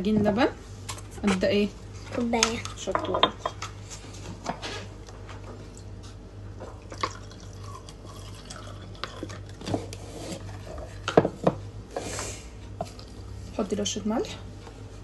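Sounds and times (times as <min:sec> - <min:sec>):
liquid pouring: 0:06.8 - 0:09.6.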